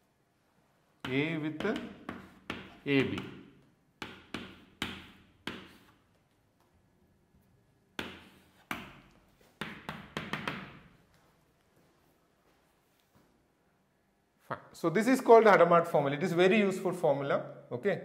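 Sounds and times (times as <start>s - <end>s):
chalk tapping on a blackboard: 1.0s - 3.4s, 4.0s - 6.1s, 8.0s - 10.8s.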